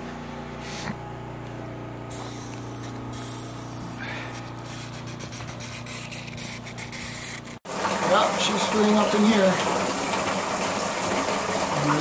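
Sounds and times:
water pump humming: 7.4s - 12.0s
water flowing: 7.7s - 12.0s.

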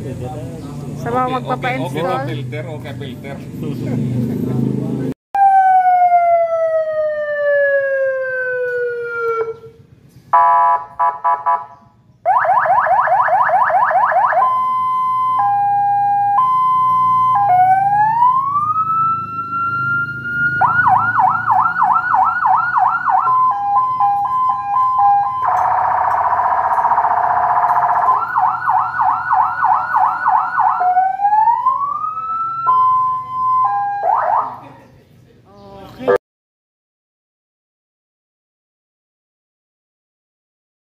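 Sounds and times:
fire truck siren: 5.4s - 11.6s, 12.2s - 34.6s.

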